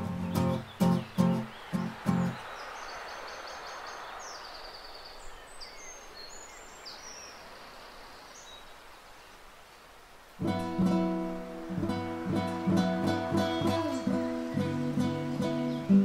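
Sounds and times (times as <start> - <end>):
birds chirping: 0.0 - 16.0
soft outdoor hiss: 0.0 - 16.0
acoustic guitar strum: 10.4 - 16.0.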